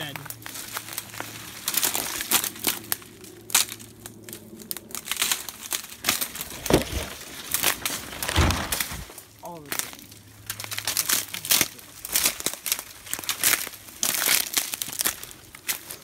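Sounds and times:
dry grass crackling and rustling: 0.0s - 16.0s.

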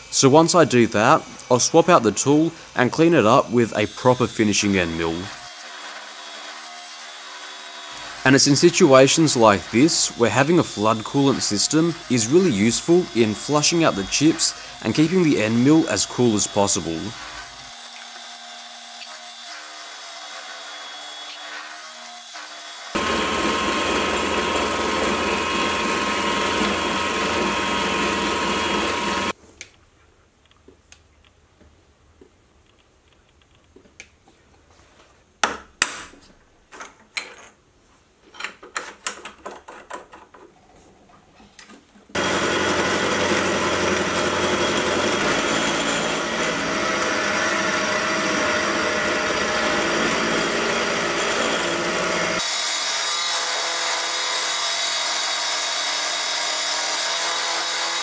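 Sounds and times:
milling machine cutting steel: 3.6s - 18.0s, 22.1s - 29.3s, 42.2s - 58.0s
sharp knocks and clicks: 38.4s - 40.5s.

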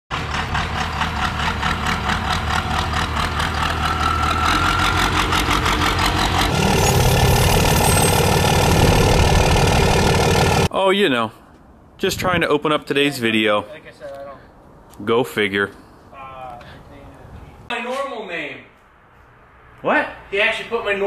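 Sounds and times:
diesel engine clatter: 0.1s - 10.7s
steady engine-like sound: 0.1s - 10.7s.

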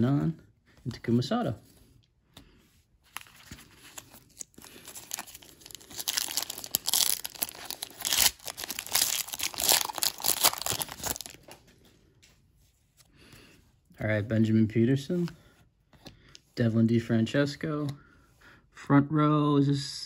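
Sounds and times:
foil wrapper tearing and crinkling: 3.2s - 11.6s.

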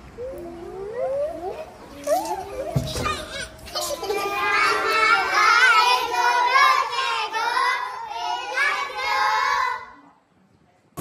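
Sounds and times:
young children calling out: 0.2s - 6.9s.

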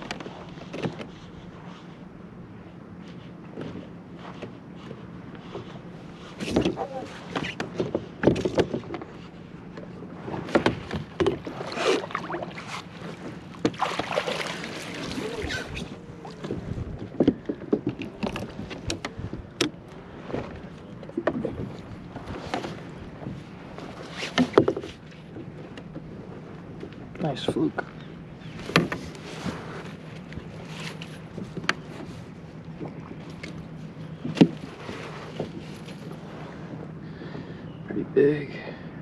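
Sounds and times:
gear knocking against kayak: 6.4s - 12.5s, 13.1s - 26.1s, 28.5s - 32.2s, 32.8s - 36.1s
fish splashing: 11.5s - 16.4s.

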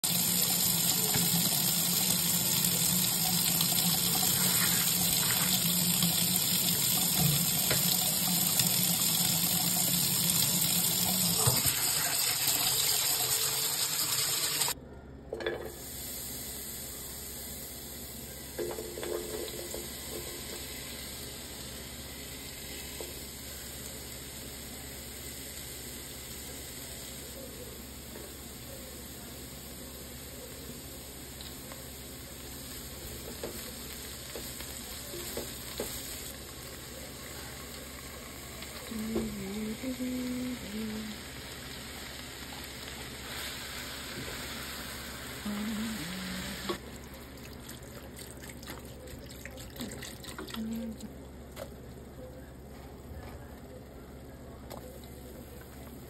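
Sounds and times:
tap water running into colander: 0.0s - 14.8s, 43.9s - 51.7s
vegetables sizzling in oil: 0.0s - 14.8s, 15.7s - 47.6s.

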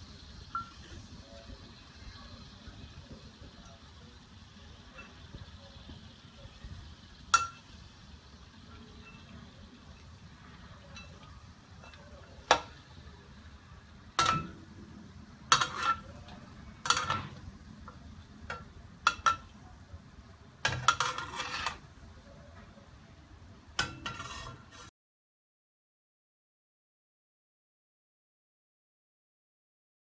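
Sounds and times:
chicken frying in oil: 0.0s - 24.9s
spatula clanking on wok: 7.3s - 7.8s, 10.8s - 12.8s, 14.2s - 14.7s, 15.5s - 19.6s, 20.6s - 21.8s, 23.8s - 24.9s.

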